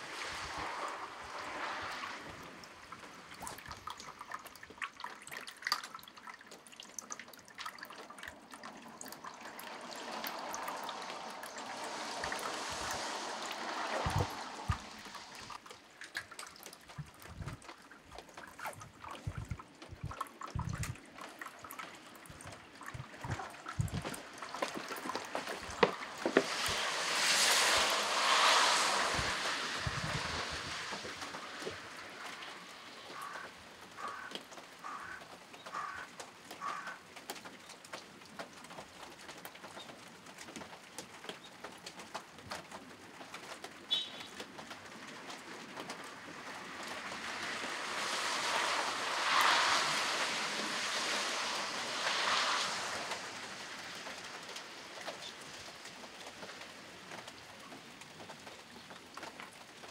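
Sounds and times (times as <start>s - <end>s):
rain: 0.0s - 59.9s
rushing noise: 9.4s - 15.6s, 23.0s - 33.6s, 46.8s - 54.8s.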